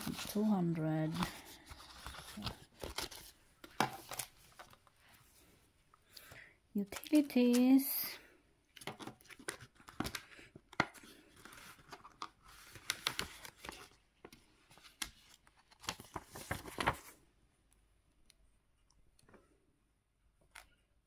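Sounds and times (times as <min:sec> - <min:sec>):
paper rustling: 0:00.0 - 0:05.5, 0:08.8 - 0:17.2.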